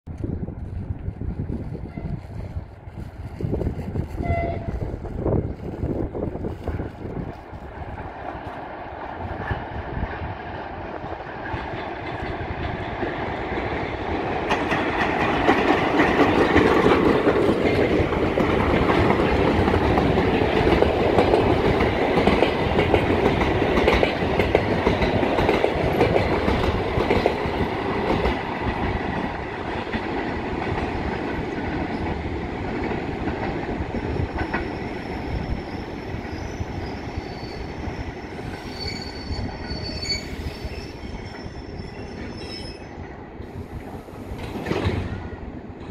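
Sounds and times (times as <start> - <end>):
train wheels clattering: 11.2 - 37.2
high wheel squeal: 34.7 - 43.0.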